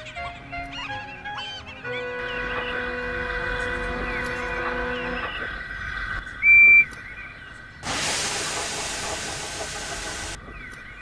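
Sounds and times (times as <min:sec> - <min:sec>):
steam hissing: 0:07.8 - 0:10.4.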